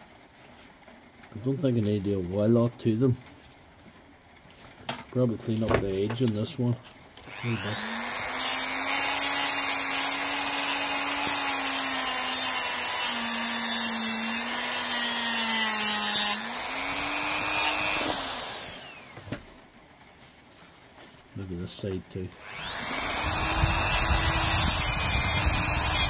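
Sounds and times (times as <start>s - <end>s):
rotary tool grinding: 7.2s - 19.2s, 22.4s - 26.0s.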